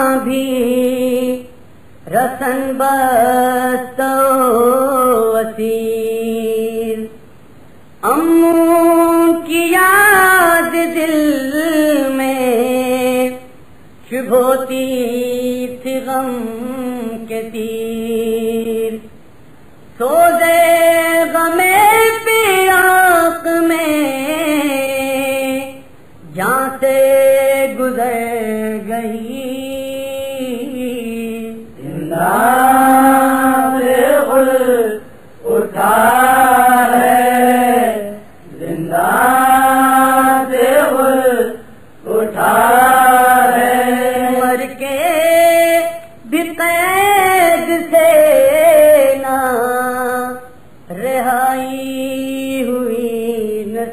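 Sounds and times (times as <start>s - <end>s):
man chanting a lament: 0.0s - 7.2s, 20.0s - 53.9s.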